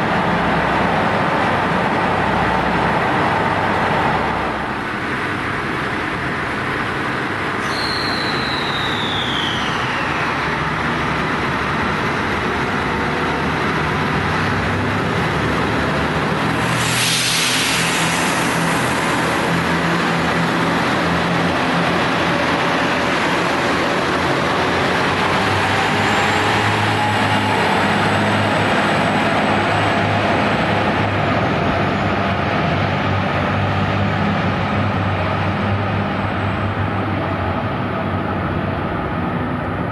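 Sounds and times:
diesel train engines humming: 0:00.0 - 0:39.9
short loud hiss: 0:16.6 - 0:18.7.

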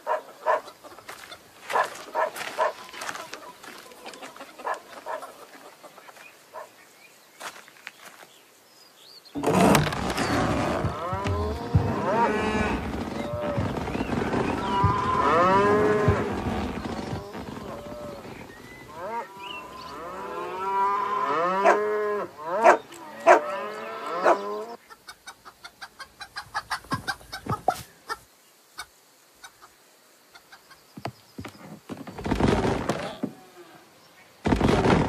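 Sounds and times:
noisy burst: 0:09.4 - 0:19.8
cartoon cows mooing: 0:09.4 - 0:24.8.

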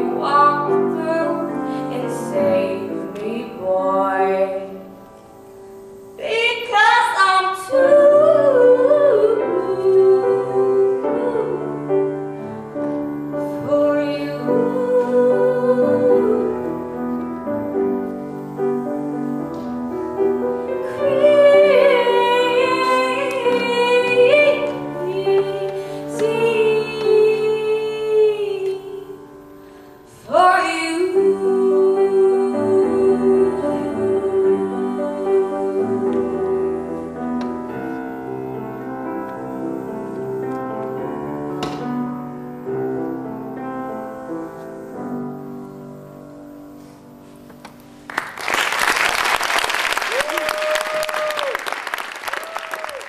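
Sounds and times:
woman singing a slow ballad: 0:00.0 - 0:04.8, 0:06.2 - 0:11.8, 0:13.4 - 0:16.7, 0:20.8 - 0:29.3, 0:30.1 - 0:37.1
grand piano: 0:00.0 - 0:53.0.

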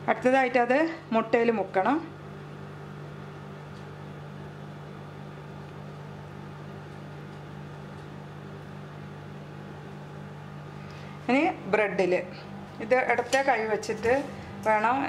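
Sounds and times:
steady low hum with hiss: 0:00.0 - 0:15.0.

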